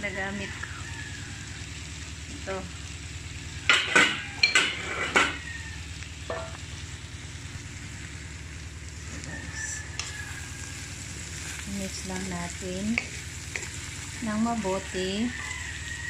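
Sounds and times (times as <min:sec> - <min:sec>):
frying sizzle: 0:00.0 - 0:16.0
low steady hum: 0:00.0 - 0:16.0
spatula scraping a metal wok: 0:03.7 - 0:05.5, 0:09.9 - 0:16.0.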